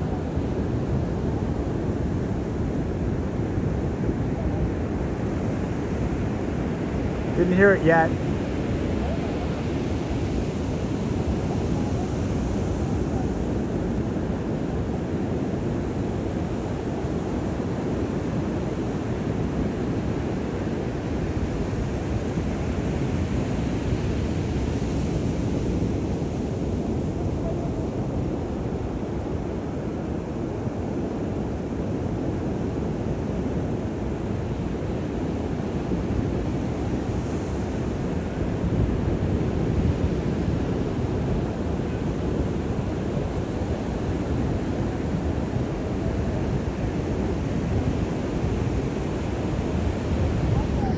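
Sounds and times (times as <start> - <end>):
wind buffeting microphone: 35.9 - 50.9.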